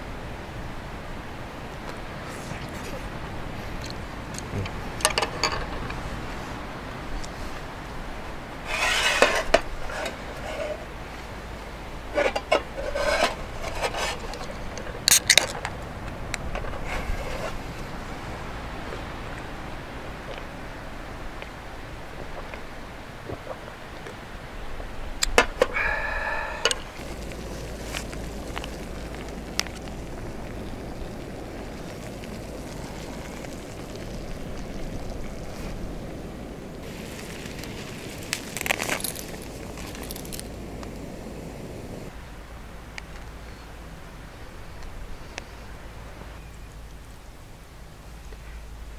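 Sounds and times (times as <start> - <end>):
chopsticks scraping tin can: 8.7 - 10.8, 12.2 - 15.4.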